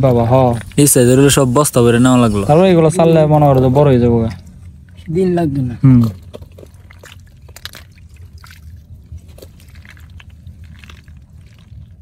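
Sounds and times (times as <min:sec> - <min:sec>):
low rumble: 0:00.0 - 0:12.0
small wet splashes: 0:06.1 - 0:12.0.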